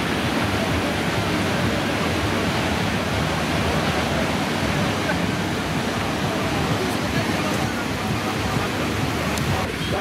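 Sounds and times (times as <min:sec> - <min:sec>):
ocean surf breaking on beach: 0:00.0 - 0:10.0.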